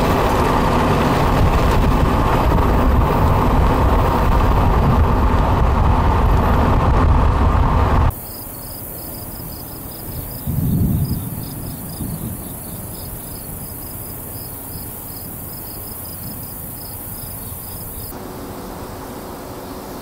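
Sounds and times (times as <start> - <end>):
low rumble: 0.0 - 8.1
insects chirping: 8.1 - 20.0
steady hiss: 8.1 - 20.0.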